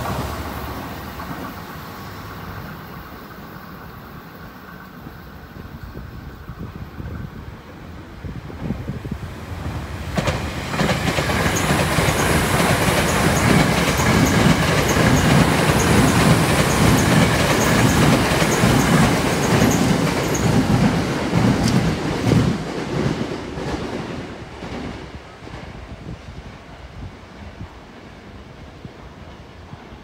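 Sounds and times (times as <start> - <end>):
train wheels clacking on rails: 9.6 - 25.8.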